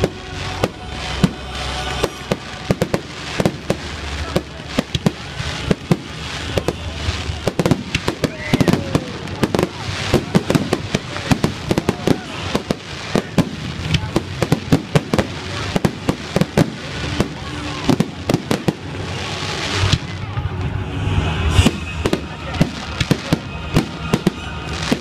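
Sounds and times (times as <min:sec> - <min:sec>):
fireworks bursting: 0:00.0 - 0:25.0.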